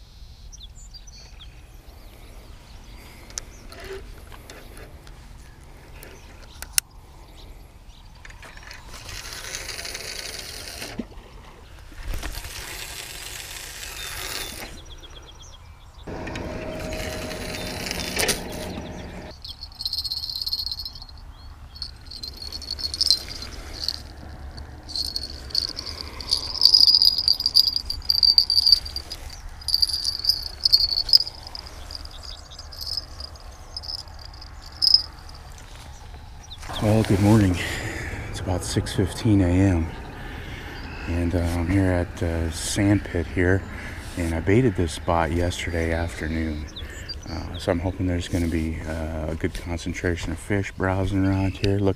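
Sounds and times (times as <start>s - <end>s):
insects chirping: 19.3s - 36.3s
tackle clicks and knocks: 21.8s - 32.1s, 32.7s - 35.1s.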